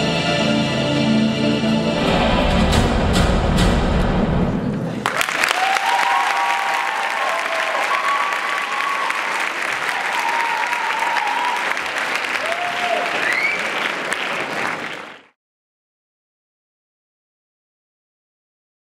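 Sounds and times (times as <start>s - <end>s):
audience applauding: 4.9s - 15.4s
people cheering: 5.0s - 15.3s.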